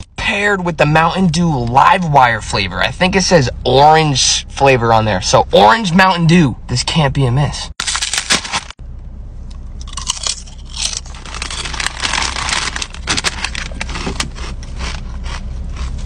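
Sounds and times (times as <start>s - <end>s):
steady low hum: 0.0s - 16.0s
foil bag crinkling: 7.8s - 8.8s, 10.0s - 15.0s
chips crunched and chewed: 9.8s - 16.0s.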